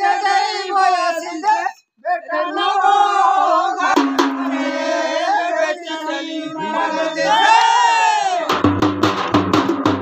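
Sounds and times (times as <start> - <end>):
voices chanting folk song: 0.0 - 8.6.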